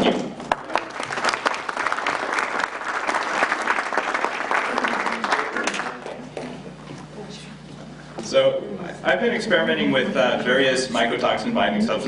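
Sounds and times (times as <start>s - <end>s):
audience applauding: 0.4s - 6.4s.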